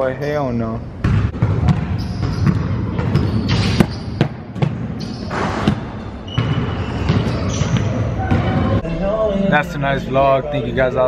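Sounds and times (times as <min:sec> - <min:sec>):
basketballs bouncing on wooden floor: 0:01.0 - 0:08.8.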